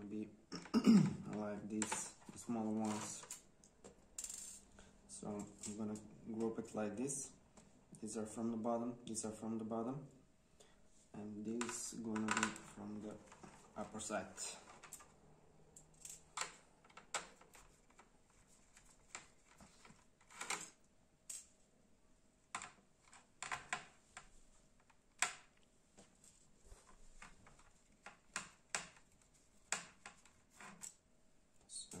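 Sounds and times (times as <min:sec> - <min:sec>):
metal screws clicking on surface: 0:04.2 - 0:04.7.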